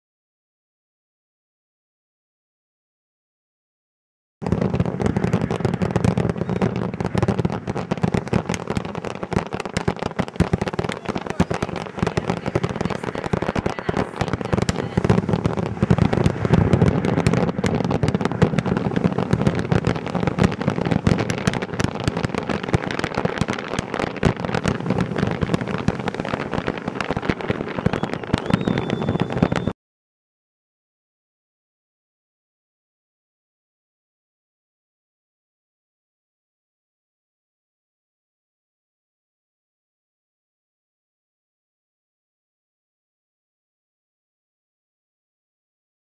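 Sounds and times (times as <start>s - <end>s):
fireworks bursting and crackling: 4.4s - 29.8s.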